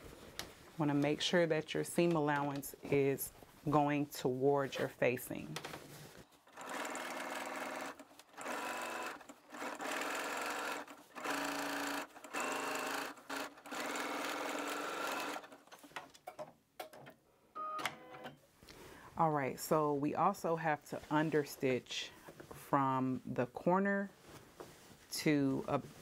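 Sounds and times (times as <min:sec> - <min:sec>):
sewing machine stitching: 0:06.4 - 0:16.0.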